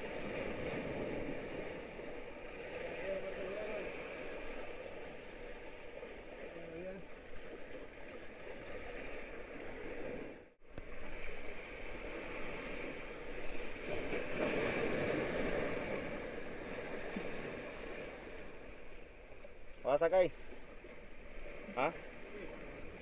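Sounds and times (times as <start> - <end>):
surf washing against rocks: 0.0 - 23.0.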